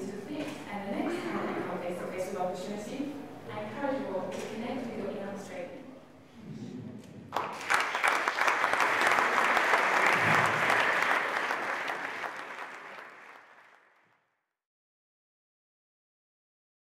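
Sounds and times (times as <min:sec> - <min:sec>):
audience applause: 0:07.3 - 0:14.0.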